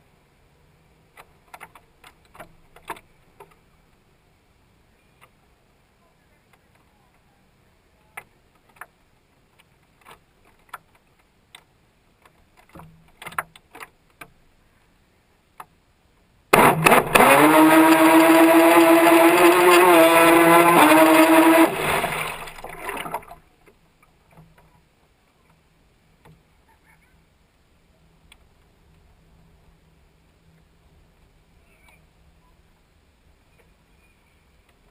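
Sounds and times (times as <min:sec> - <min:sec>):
water rushing: 0:16.5 - 0:23.4
model boat motor running: 0:16.6 - 0:23.3.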